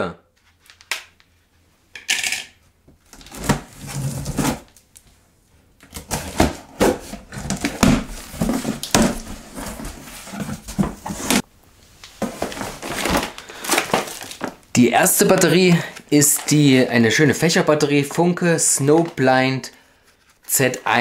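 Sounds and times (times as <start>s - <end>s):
cardboard flaps scraping and rustling: 3.2s - 4.8s, 5.9s - 11.5s, 12.2s - 14.6s.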